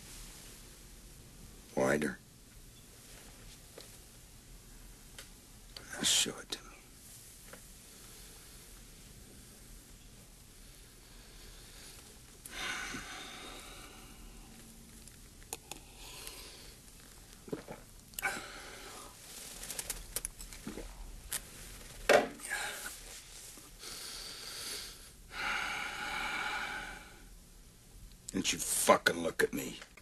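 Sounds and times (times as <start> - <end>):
soft rustling: 2.9 - 4.2, 16.1 - 23.8
breathy noises: 10.9 - 20.9.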